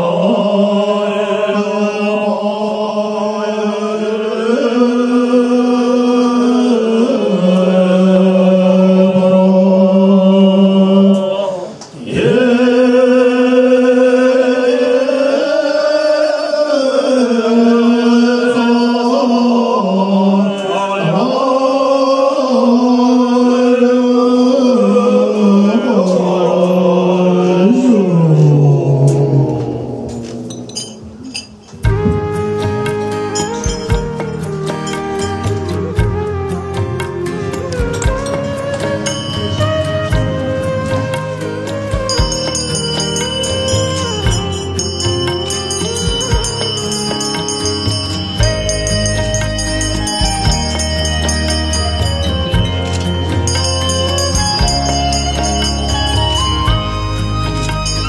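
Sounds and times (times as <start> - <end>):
monks chanting in unison: 0.0 - 30.5.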